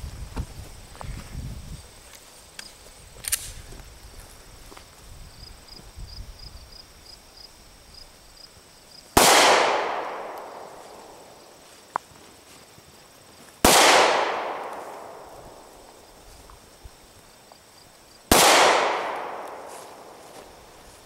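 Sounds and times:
pistol shots echoing: 9.2s - 11.2s, 13.6s - 15.7s, 18.3s - 20.2s.

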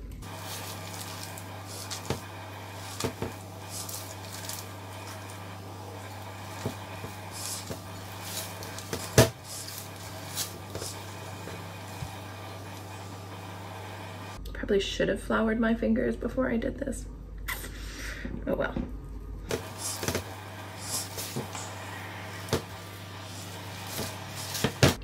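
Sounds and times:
steady low hum: 0.0s - 14.7s, 18.4s - 25.0s
hands kneading dough: 0.2s - 14.4s, 19.5s - 25.0s.

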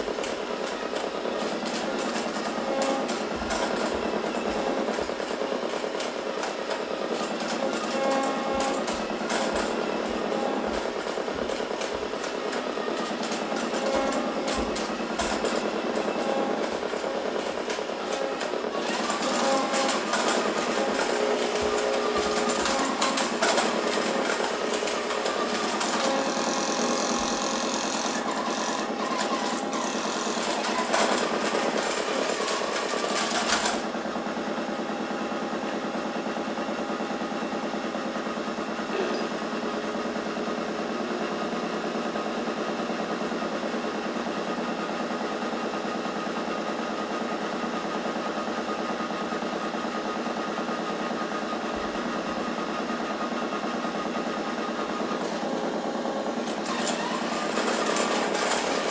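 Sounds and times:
toy train motors buzzing: 0.0s - 33.9s, 56.3s - 58.9s.

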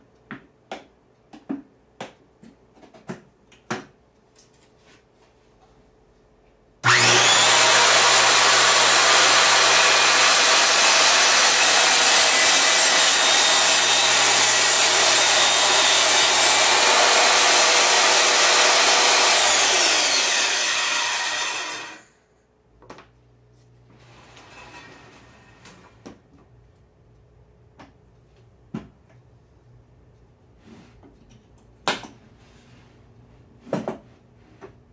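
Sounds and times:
table saw running: 6.8s - 22.1s.

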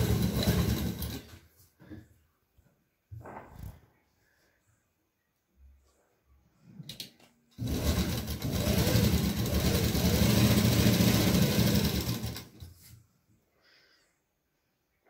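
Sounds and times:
sewing machine stitching: 0.0s - 1.4s, 7.6s - 12.7s.

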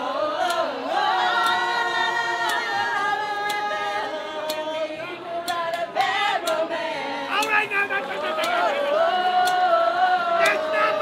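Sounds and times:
person singing long notes: 7.2s - 11.0s.

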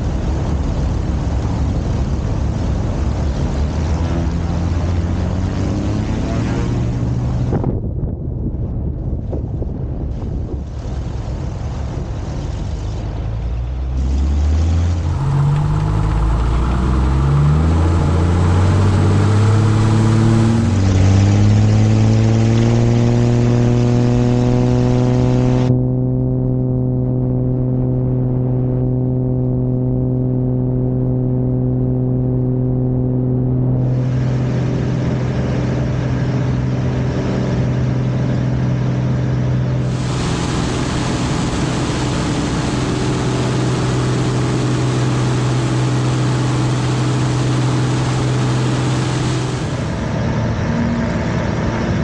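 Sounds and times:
piston aircraft engine starting: 10.2s - 25.7s, 32.6s - 52.0s.

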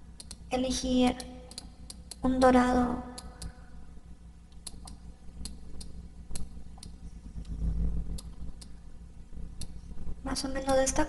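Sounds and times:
low steady hum: 0.0s - 11.0s
computer mouse clicking: 0.2s - 0.5s, 1.2s - 2.5s, 4.5s - 8.8s, 9.6s - 9.8s.

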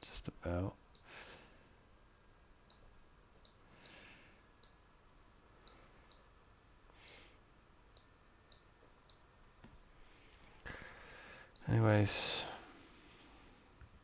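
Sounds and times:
computer mouse clicks: 2.6s - 4.0s
soft breathy sounds: 10.0s - 14.0s.

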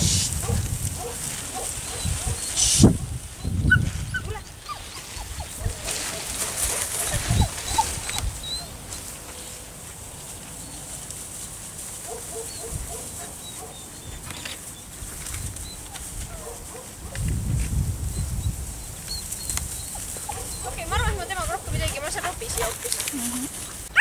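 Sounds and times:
puppy whining and yipping: 1.8s - 2.8s, 3.4s - 5.9s, 6.9s - 8.8s, 12.3s - 14.5s, 15.4s - 16.8s, 18.1s - 21.1s.

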